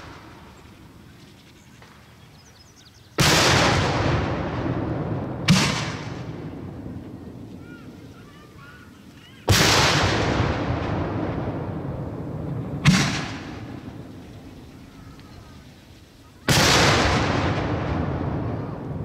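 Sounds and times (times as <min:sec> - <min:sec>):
firework shells bursting: 0:03.2 - 0:07.0, 0:09.4 - 0:15.4.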